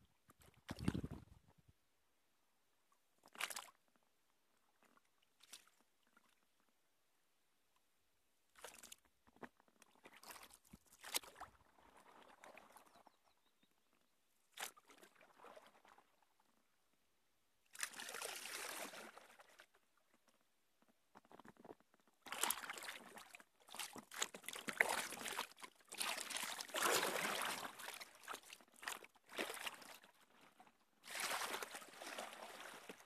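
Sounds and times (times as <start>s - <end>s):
paddle splashing in water: 3.3s - 3.7s, 9.9s - 13.0s, 14.5s - 16.2s, 17.7s - 19.7s, 22.2s - 33.0s.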